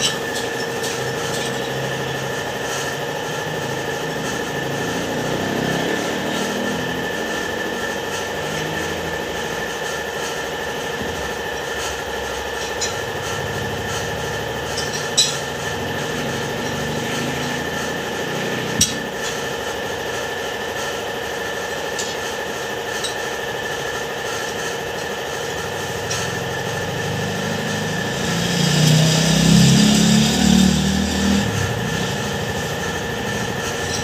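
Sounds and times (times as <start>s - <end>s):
engine running: 0.0s - 34.0s
steady mechanical hum: 0.0s - 34.0s
sharp metallic clinks: 14.6s - 15.6s.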